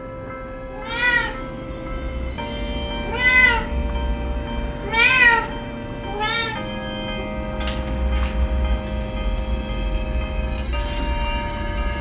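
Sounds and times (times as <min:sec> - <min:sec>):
cat meowing: 0:00.7 - 0:01.4, 0:03.0 - 0:03.7, 0:04.8 - 0:05.5, 0:06.1 - 0:06.8.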